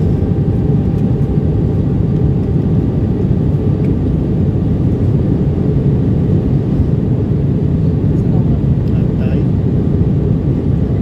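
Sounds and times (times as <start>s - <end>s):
airplane cabin engine rumble: 0.0s - 11.0s.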